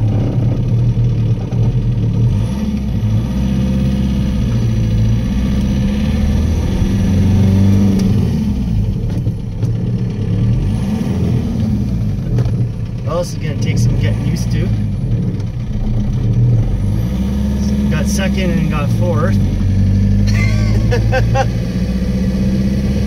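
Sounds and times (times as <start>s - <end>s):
diesel engine revving: 0.0s - 23.0s.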